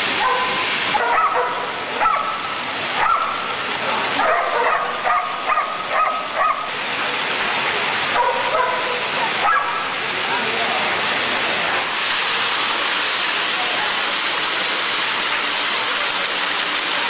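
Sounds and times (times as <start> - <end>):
dogs yelping and barking: 0.2 - 2.4, 4.2 - 6.7, 8.2 - 9.8.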